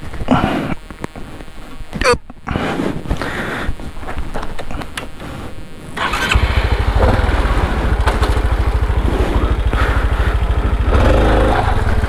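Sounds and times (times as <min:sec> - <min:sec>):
motorcycle engine revving: 0:06.0 - 0:12.0.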